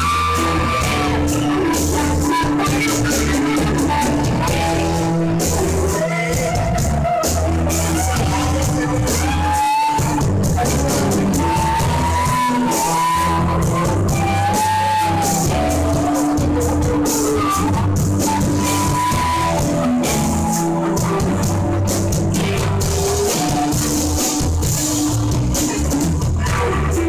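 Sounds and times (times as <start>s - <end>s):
bass line: 0.0s - 27.0s
drums and cymbals: 0.0s - 27.0s
electric guitars: 0.0s - 27.0s.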